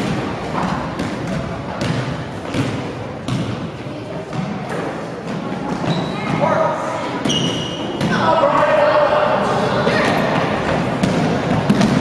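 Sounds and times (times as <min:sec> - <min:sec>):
basketball bouncing on wood floor: 0:00.0 - 0:03.6, 0:10.4 - 0:12.0
court hubbub: 0:00.0 - 0:12.0.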